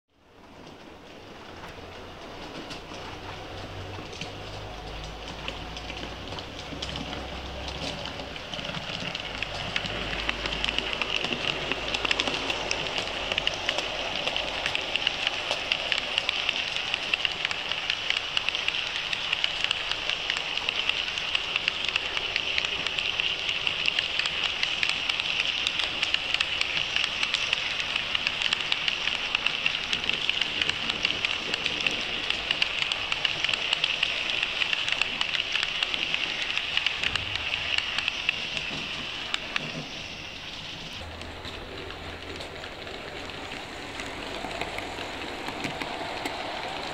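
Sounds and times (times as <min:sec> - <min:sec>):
model train wheels rattling on rails: 0:00.2 - 0:46.9.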